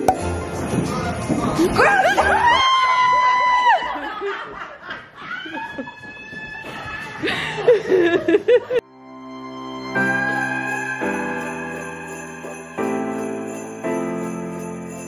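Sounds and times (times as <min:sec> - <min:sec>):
people laughing: 0:01.6 - 0:06.2, 0:06.9 - 0:08.8.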